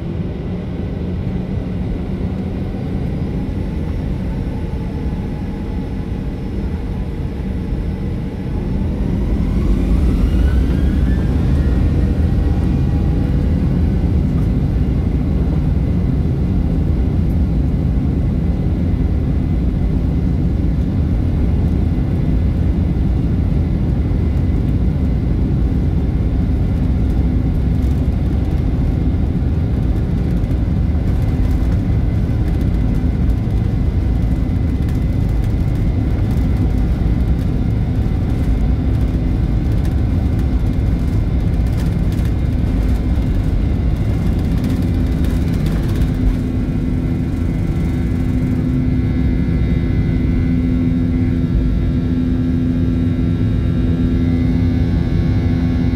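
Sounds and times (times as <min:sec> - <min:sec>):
jet engines droning in cabin: 0:00.0 - 0:55.9
faint rising whine: 0:02.7 - 0:14.8.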